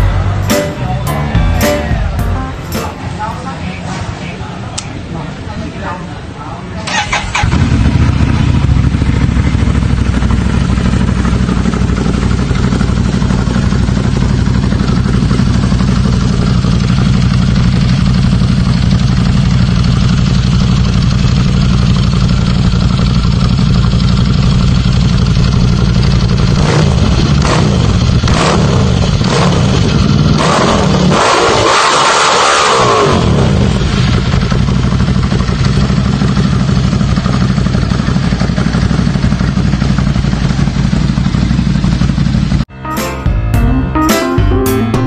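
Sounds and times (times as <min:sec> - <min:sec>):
motorcycle engine idling: 0:06.9 - 0:31.1, 0:33.4 - 0:42.7.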